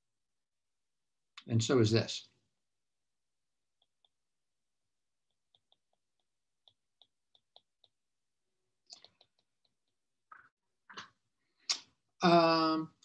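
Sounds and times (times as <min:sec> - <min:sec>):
stylus tapping on glass screen: 0:05.2 - 0:08.0.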